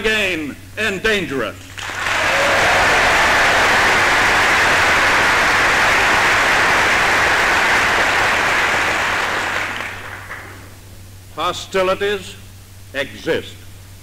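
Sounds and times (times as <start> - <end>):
large audience applauding: 1.7 - 10.7.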